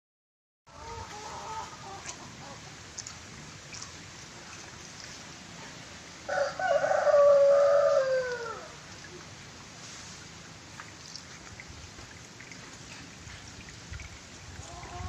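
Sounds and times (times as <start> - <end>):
rooster crowing: 6.3 - 8.8.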